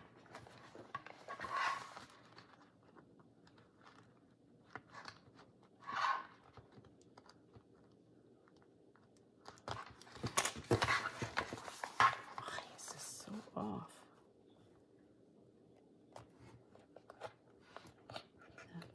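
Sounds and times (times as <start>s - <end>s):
paper rustling: 0.0s - 7.8s.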